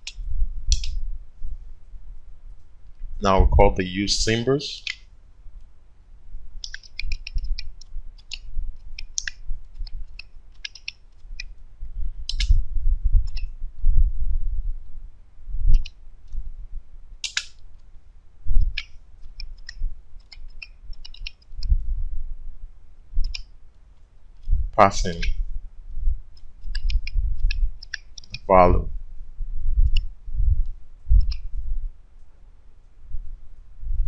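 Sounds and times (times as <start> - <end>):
keyboard keys clicking: 6.6 - 11.5, 12.3 - 12.5, 18.6 - 21.6, 26.4 - 28.5
dull low thuds: 28.9 - 32.0.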